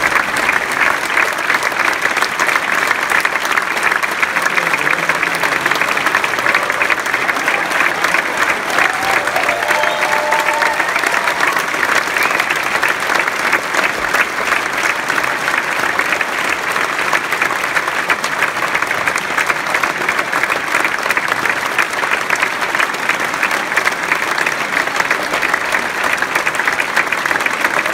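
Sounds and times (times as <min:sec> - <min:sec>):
audience applauding: 0:00.0 - 0:27.9.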